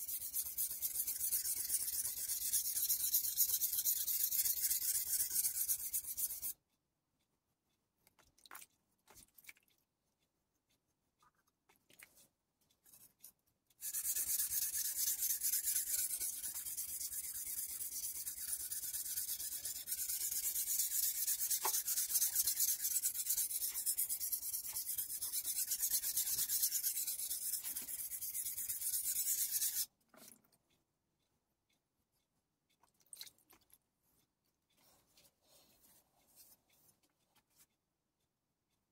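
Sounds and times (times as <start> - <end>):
knife grinding on whetstone: 0.1 - 6.5, 13.8 - 29.9.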